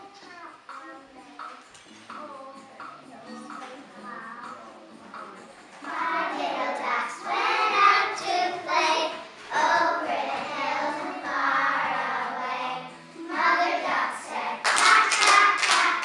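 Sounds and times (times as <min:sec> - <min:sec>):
children singing together: 0:05.8 - 0:16.0.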